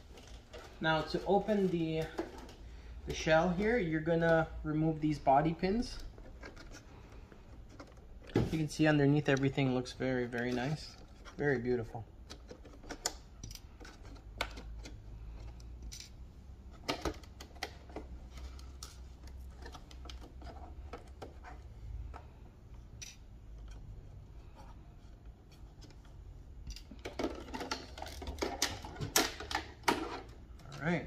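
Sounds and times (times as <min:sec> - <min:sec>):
clicks and rattles: 0:26.6 - 0:30.8.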